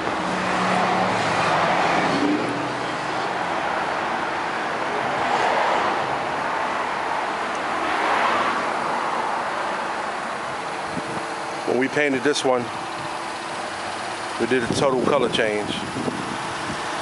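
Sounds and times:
passing cars hum: 0.0s - 17.0s.

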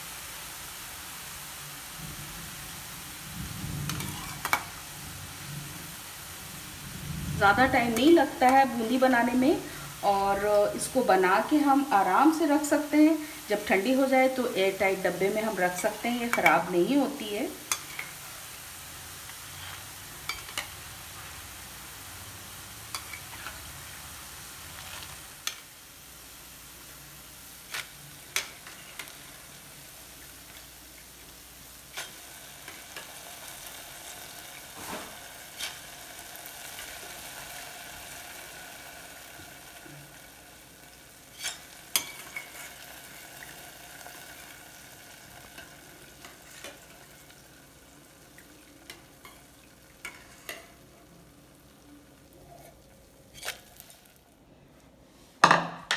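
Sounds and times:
batter frying in hot oil: 0.0s - 54.4s
metal spoon scraping a pan: 3.9s - 4.7s, 17.7s - 18.2s, 19.4s - 20.8s, 22.9s - 23.7s, 27.7s - 29.2s, 31.9s - 33.2s, 34.8s - 35.9s, 41.3s - 42.8s, 48.9s - 50.8s, 52.5s - 53.9s.

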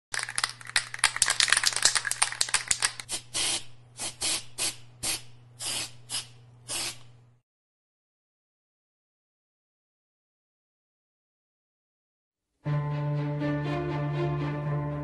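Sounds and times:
spray can rattling: 0.1s - 7.1s
spray can hissing: 1.2s - 7.1s.

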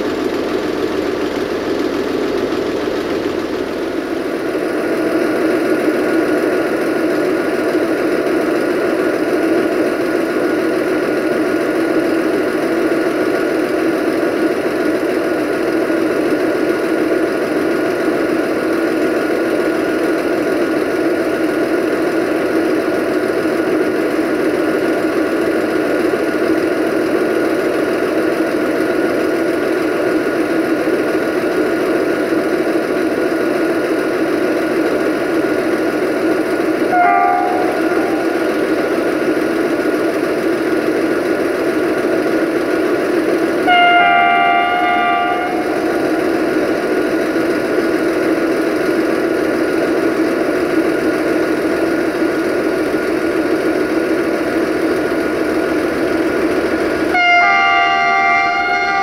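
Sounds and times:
diesel train engine droning: 0.0s - 59.0s
train horn: 36.9s - 38.9s, 43.6s - 46.6s, 57.1s - 59.0s.

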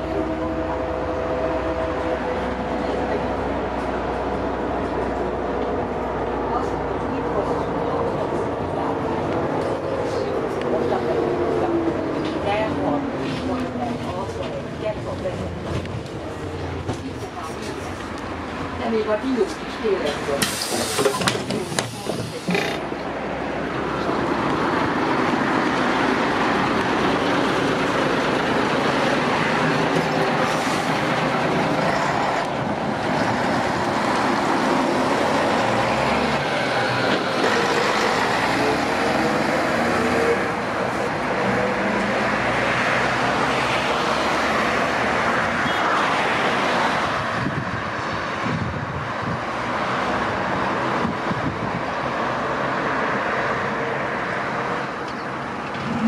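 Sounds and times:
bus engine accelerating: 0.0s - 56.0s
passing road traffic: 0.0s - 56.0s.

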